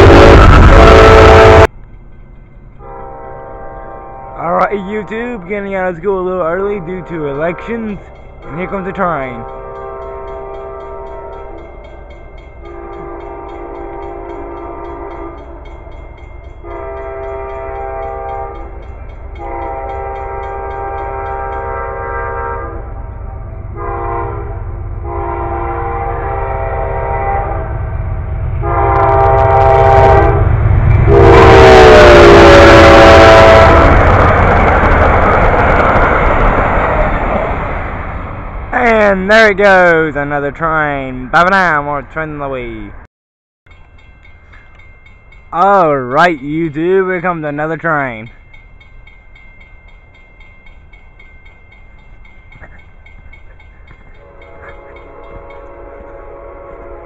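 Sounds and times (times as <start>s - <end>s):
train horn blasts: 0.0s - 1.8s, 2.8s - 4.7s, 6.7s - 11.8s, 12.6s - 15.9s, 16.6s - 34.3s, 54.2s - 57.0s
train cars rushing past on rails: 0.0s - 40.9s, 43.7s - 57.0s.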